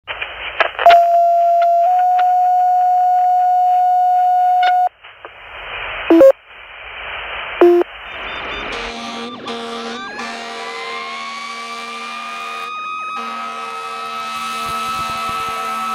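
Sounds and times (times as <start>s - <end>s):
radio hiss: 0.1s - 1.8s, 4.8s - 9.8s
two-tone radio page: 0.1s - 6.4s, 7.4s - 9.7s
short beeps: 0.9s - 4.9s, 6.1s - 6.3s, 7.6s - 8.8s.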